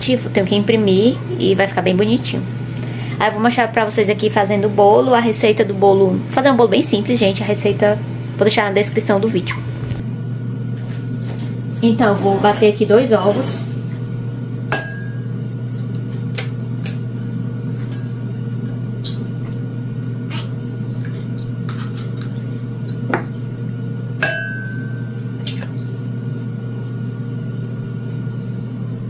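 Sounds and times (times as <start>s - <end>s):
low hum: 0.0s - 29.0s
glass ringing: 14.7s - 15.3s, 24.2s - 25.2s
egg tapping glass bowl: 24.2s - 25.0s.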